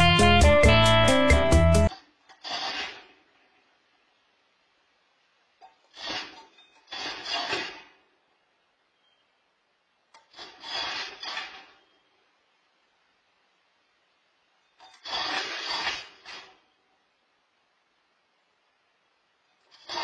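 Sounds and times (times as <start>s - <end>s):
groundhog gnawing on wire: 10.1s - 12.0s, 14.8s - 16.6s.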